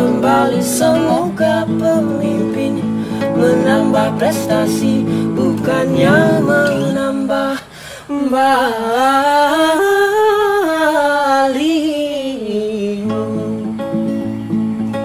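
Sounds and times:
guitar playing: 0.0 - 7.5
person singing: 0.0 - 10.1.

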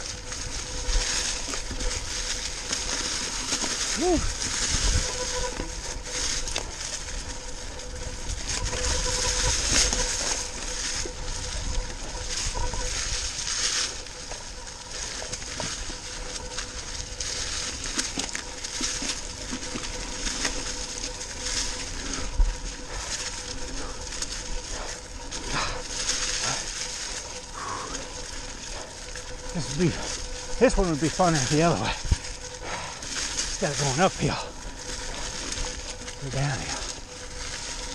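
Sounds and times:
bike knocking and rattling: 0.0 - 27.4
bike tyres crunching dry leaves: 0.0 - 37.9.

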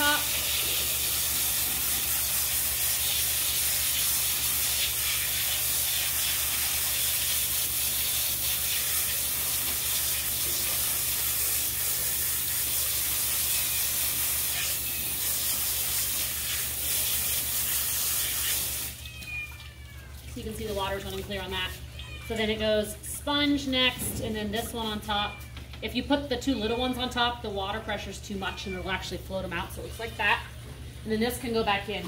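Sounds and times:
hose water spraying and splashing: 0.0 - 22.5.

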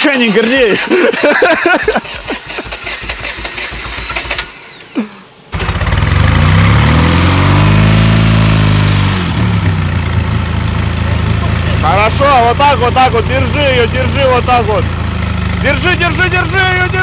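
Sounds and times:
people talking: 0.0 - 1.9, 11.0 - 14.9, 15.6 - 17.0
car engine idling and revving: 1.9 - 17.0.

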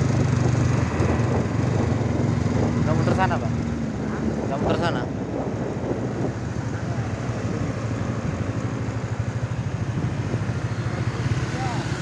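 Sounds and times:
motorcycle engine running: 0.0 - 12.0
wind noise on microphone: 0.0 - 12.0.

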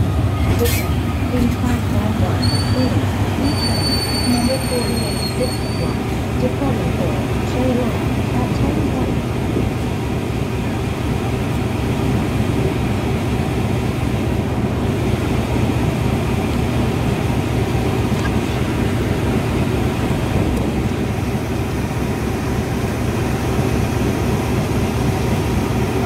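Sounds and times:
diesel locomotive idling: 0.0 - 26.0.

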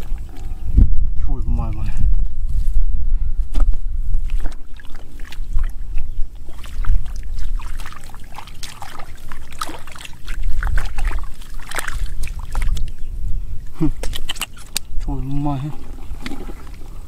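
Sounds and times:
steady low rumble: 0.0 - 14.0
mud squelching: 3.5 - 17.0
hands splashing in muddy water: 3.6 - 13.0, 13.9 - 14.9, 15.7 - 17.0.

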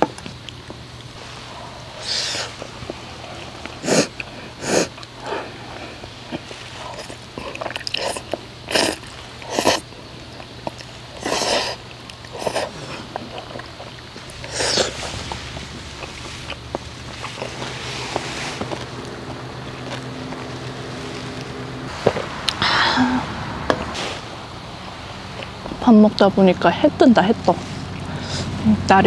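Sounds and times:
sniffing: 1.2 - 9.9, 11.2 - 19.1, 28.0 - 28.6
noodles slurped: 1.2 - 23.1.

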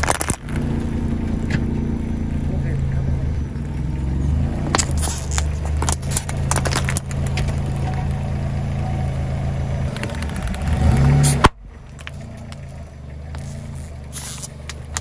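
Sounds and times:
car engine idling: 0.0 - 15.0
ping pong balls cracking: 9.9 - 12.7, 14.2 - 15.0.

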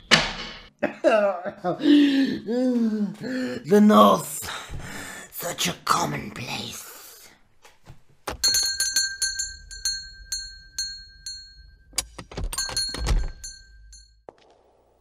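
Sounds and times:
small bell ringing: 8.4 - 14.2.

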